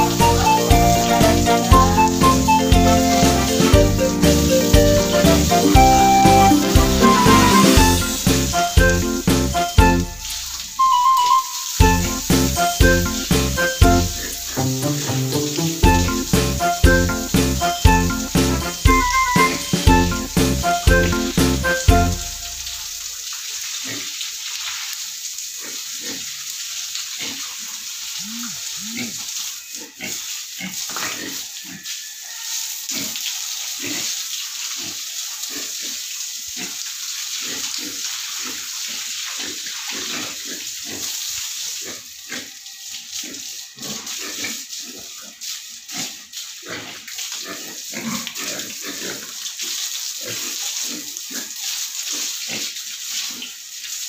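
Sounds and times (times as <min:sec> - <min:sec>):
hose water spraying on concrete: 0:00.0 - 0:54.0
pigs grunting: 0:28.2 - 0:31.9, 0:39.4 - 0:41.2, 0:43.2 - 0:49.3.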